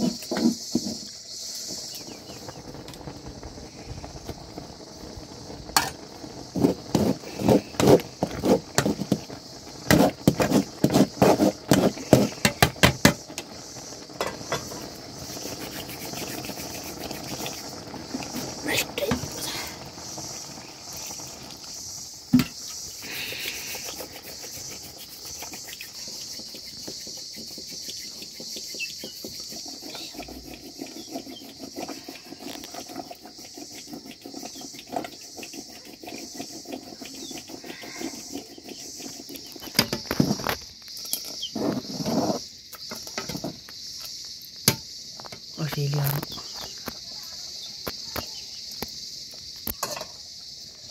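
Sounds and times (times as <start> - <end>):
insects chirping: 0.0 - 50.9
ladle scraping a metal pot: 6.6 - 13.4, 29.4 - 40.5.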